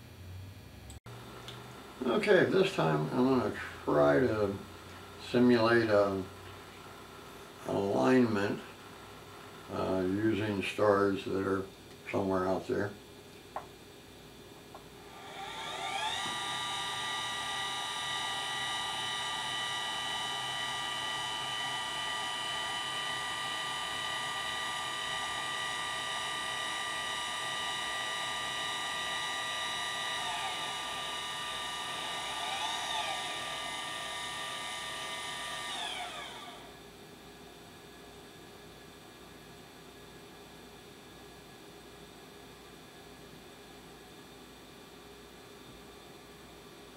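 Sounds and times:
motors whining: 15.1s - 36.8s.

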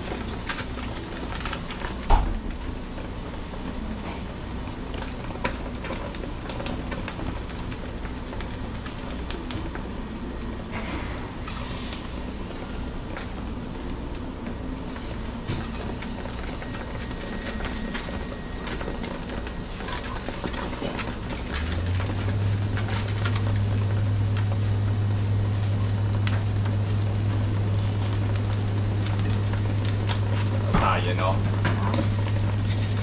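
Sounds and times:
fat crackling: 0.0s - 33.0s
fish sizzling on a grill: 0.0s - 33.0s.

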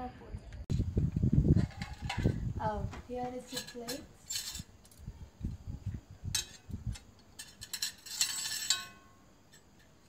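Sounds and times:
short scraping rustle: 6.6s - 9.0s.

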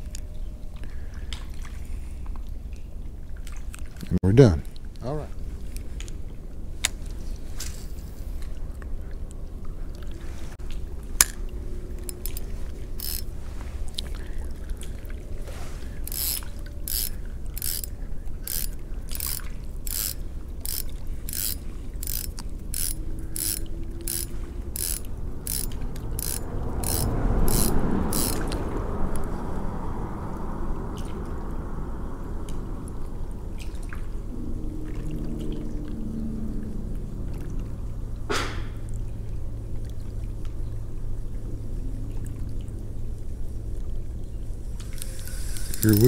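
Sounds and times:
spinning reel ratchet clicking: 12.0s - 13.3s, 16.1s - 28.6s, 44.9s - 46.0s.

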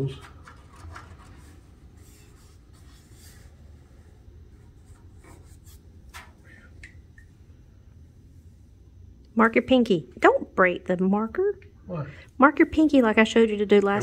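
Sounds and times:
marker scratching on steel: 4.8s - 5.8s.

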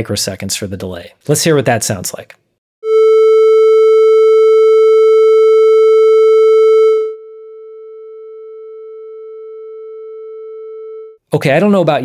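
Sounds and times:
electronic test tone: 2.8s - 11.2s.

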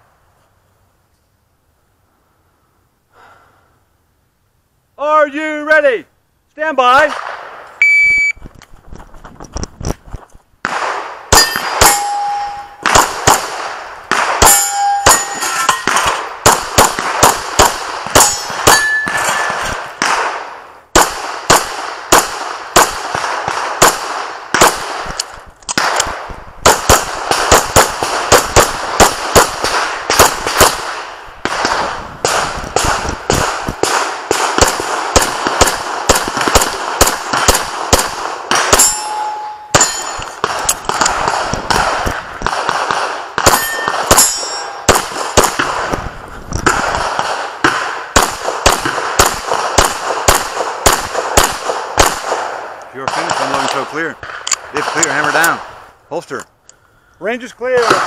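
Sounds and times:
pistol firing rapidly: 10.6s - 25.2s, 25.8s - 39.1s, 39.7s - 46.0s, 46.7s - 55.6s, 57.8s - 58.0s
steel targets clanging: 11.4s - 12.8s, 14.4s - 16.2s, 18.2s - 19.6s, 38.8s - 40.4s, 43.5s - 44.9s.

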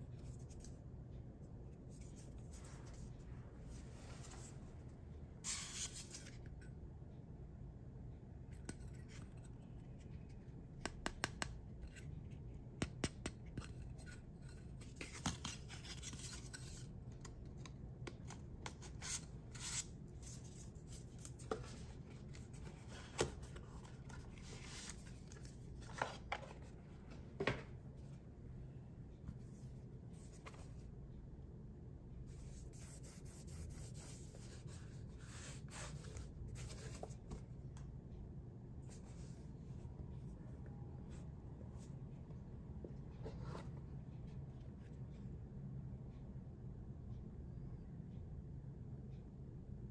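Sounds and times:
paper cards rustling: 14.8s - 27.2s.

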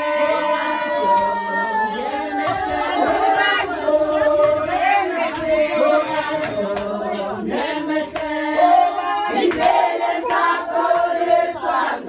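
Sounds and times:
group singing: 0.0s - 12.0s
hand claps: 4.2s - 7.0s, 8.1s - 8.4s, 9.4s - 11.2s.

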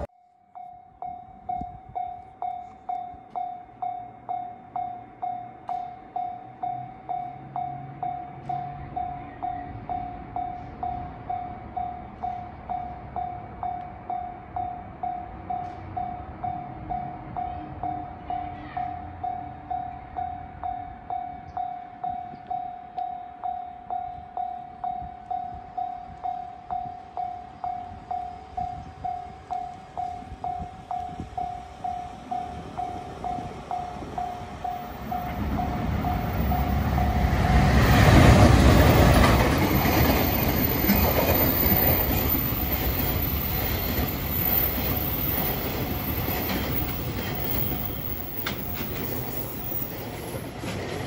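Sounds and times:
level crossing warning bell: 0.0s - 50.2s.

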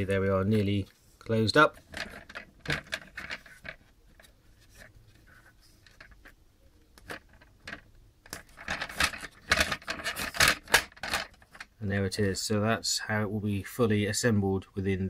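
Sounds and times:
clicks and rattles: 1.8s - 4.9s, 7.0s - 11.8s
hard plastic clicking and scraping: 1.8s - 11.7s.

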